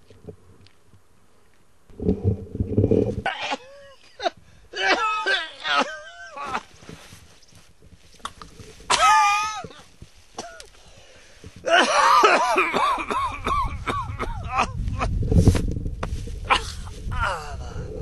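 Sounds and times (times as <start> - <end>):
low rumble: 1.9 - 3.3
man groaning and coughing: 3.2 - 6.7, 8.9 - 9.8, 11.6 - 15.1.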